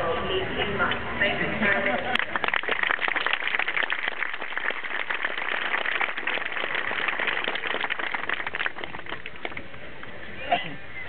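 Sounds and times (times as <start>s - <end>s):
crowd applauding: 1.6s - 9.7s.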